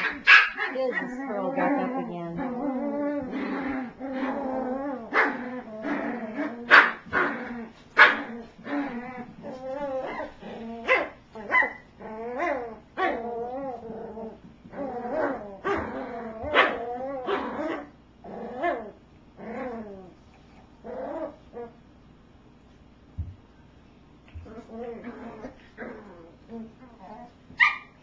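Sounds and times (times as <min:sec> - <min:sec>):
puppies growling and yipping: 0:00.0 - 0:21.8, 0:24.3 - 0:28.0.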